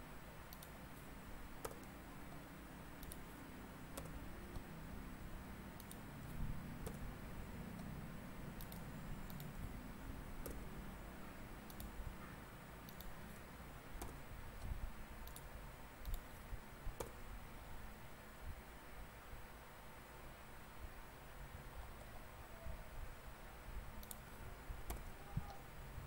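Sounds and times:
faint low room noise: 0.0s - 26.0s
mouse and keyboard clicks: 1.6s - 2.0s, 3.0s - 3.3s, 3.9s - 4.7s, 5.8s - 6.0s, 8.6s - 9.7s, 10.4s - 10.7s, 11.6s - 12.0s, 12.8s - 13.3s, 14.0s - 16.3s, 24.0s - 25.6s.

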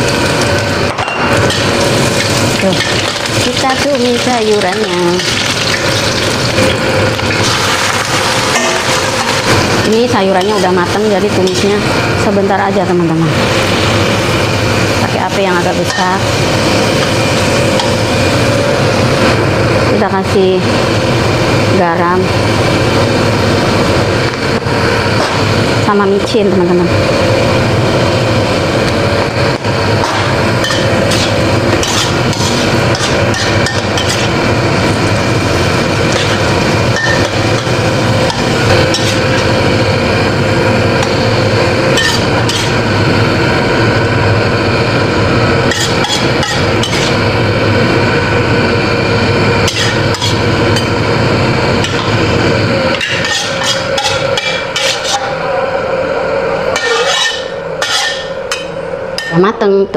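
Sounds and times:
loud sizzling hiss: 0.0s - 12.5s, 26.8s - 55.6s
metal spatula scraping a wok: 30.0s - 39.6s, 41.9s - 42.8s, 45.6s - 47.2s, 49.6s - 50.9s, 52.9s - 55.4s, 56.8s - 58.7s.

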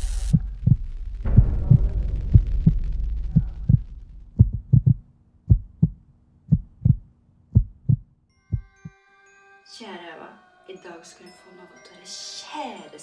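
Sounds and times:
low hum: 0.0s - 8.2s
heartbeat thumps: 0.1s - 8.7s.

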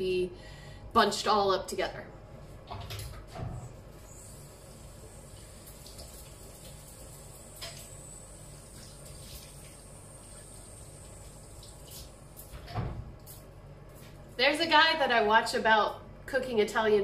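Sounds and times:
low hiss of water: 4.0s - 12.4s.

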